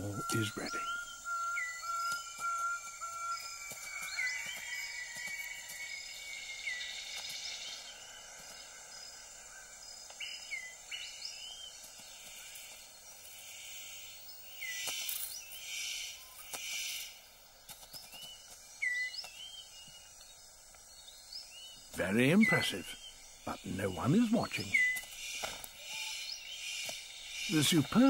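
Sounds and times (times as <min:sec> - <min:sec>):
whistled bird notes: 0:00.0 - 0:11.8, 0:17.9 - 0:28.0
high insect chorus: 0:00.0 - 0:28.0.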